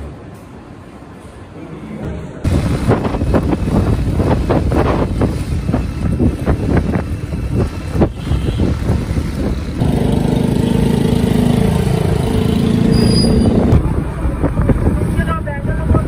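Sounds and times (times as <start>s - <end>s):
road rumble: 2.0s - 16.0s
wind buffeting: 2.4s - 10.3s
engine drone: 9.5s - 14.0s.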